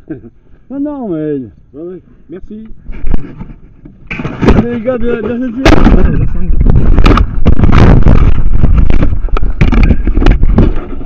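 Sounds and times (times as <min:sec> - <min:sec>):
rubbing and rustling: 0:02.8 - 0:11.0.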